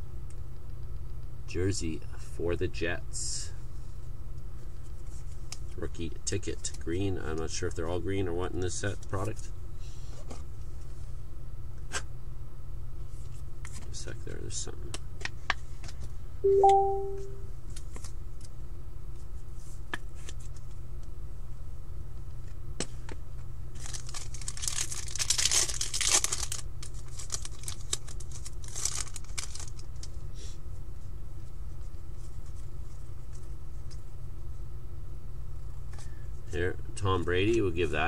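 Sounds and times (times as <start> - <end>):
short pitched tone: 16.5 - 17.5
foil wrapper tearing and crinkling: 23.7 - 30.1.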